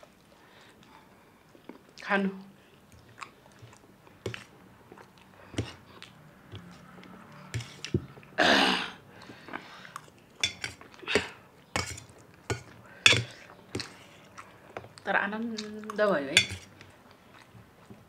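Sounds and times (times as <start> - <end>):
fork scraping on metal plate: 7.5 - 7.8, 10.4 - 10.8, 11.8 - 13.9, 16.4 - 16.7.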